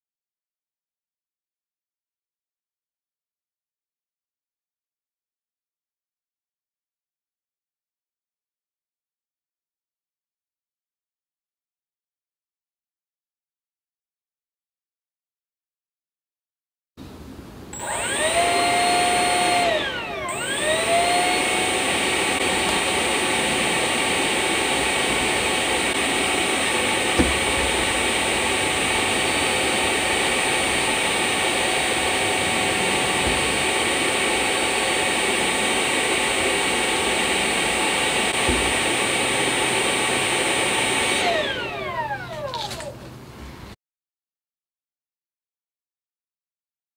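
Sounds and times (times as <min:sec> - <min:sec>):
electric fan high whine: 0:17.2 - 0:43.8.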